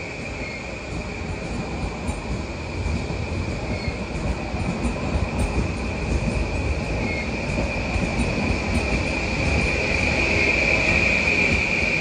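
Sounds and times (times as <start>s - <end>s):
train wheels rumbling on rail: 0.0s - 12.0s.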